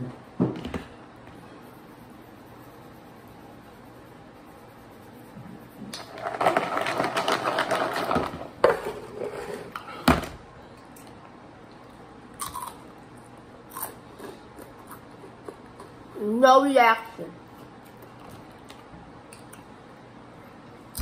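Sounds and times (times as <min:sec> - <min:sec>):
snacks rattling in plastic container: 0:06.1 - 0:08.5.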